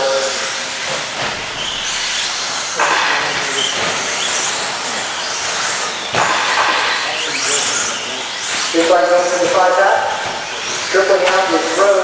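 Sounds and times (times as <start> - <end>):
radio-controlled trucks racing: 0.0 - 12.0
motor whines: 0.2 - 12.0.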